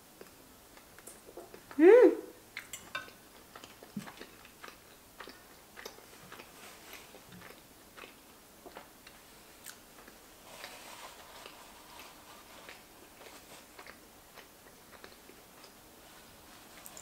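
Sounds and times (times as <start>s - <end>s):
wet mouth clicks and smacks chewing: 0.2s - 1.8s, 2.5s - 10.2s.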